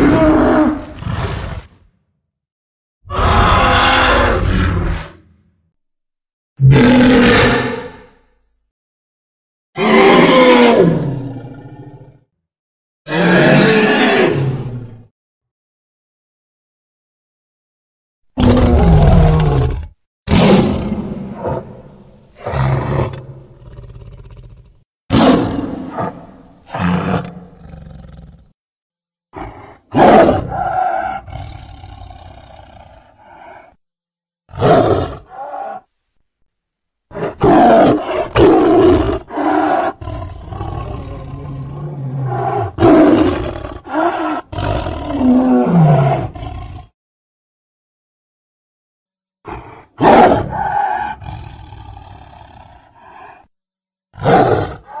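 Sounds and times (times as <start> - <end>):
creature roaring: 0.0 - 1.9, 3.1 - 5.2, 6.6 - 8.2, 9.8 - 12.2, 13.1 - 15.0, 18.4 - 28.5, 29.4 - 33.8, 34.5 - 35.9, 37.1 - 47.0, 49.5 - 53.5, 54.2 - 55.0
creature growling: 3.1 - 5.2, 18.4 - 28.6, 29.4 - 33.8, 34.5 - 35.9, 37.1 - 47.0, 49.5 - 53.5, 54.2 - 55.0.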